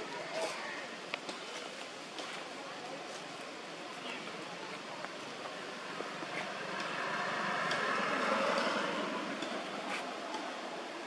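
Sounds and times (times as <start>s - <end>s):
vehicle passing by: 5.6s - 11.0s.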